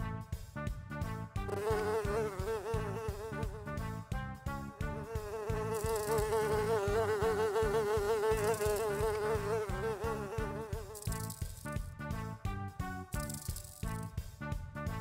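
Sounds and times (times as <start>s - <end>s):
housefly buzzing: 1.5s - 3.7s, 4.8s - 11.8s.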